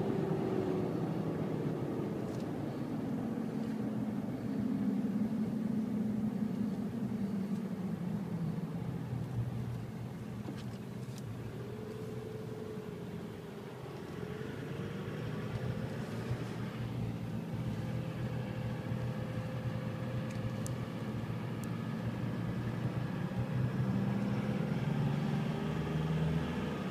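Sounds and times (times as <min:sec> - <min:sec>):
car engine and tyre hum: 0:00.0 - 0:26.9
faint clicks: 0:07.4 - 0:07.7, 0:20.2 - 0:20.8.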